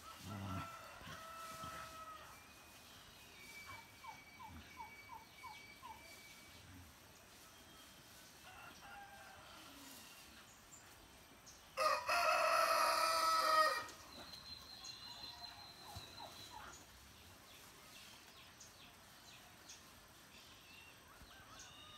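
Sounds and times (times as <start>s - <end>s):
rooster crowing: 0.1s - 2.4s, 11.8s - 13.9s.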